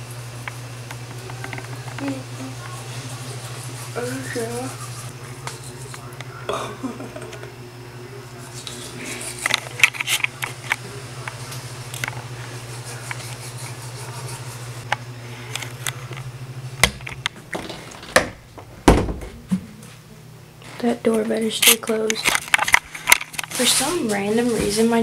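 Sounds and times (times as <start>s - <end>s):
steady low hum: 0.0s - 25.0s
toothbrush scrubbing teeth: 1.4s - 6.2s, 8.4s - 10.7s, 12.0s - 14.8s
loud thumps: 17.6s - 19.6s.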